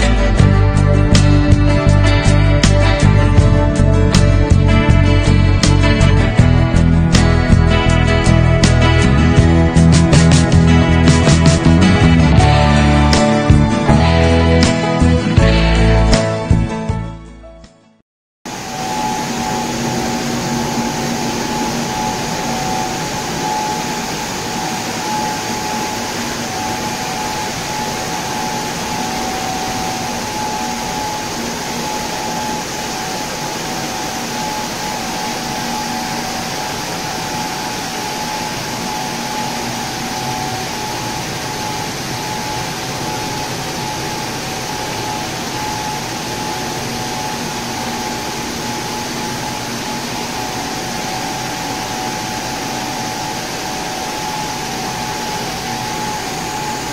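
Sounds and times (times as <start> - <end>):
machine whine and hum: 0.0 - 15.7, 18.5 - 56.9
rushing water and air: 18.5 - 56.9.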